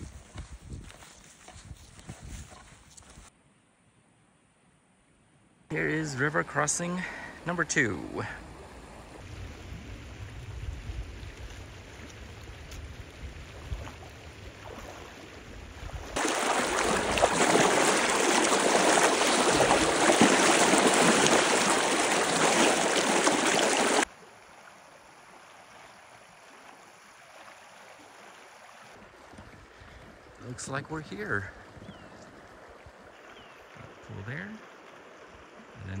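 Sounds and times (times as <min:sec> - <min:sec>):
feet splashing through water: 0:00.0 - 0:03.3, 0:08.4 - 0:30.5
river rushing: 0:16.2 - 0:24.1.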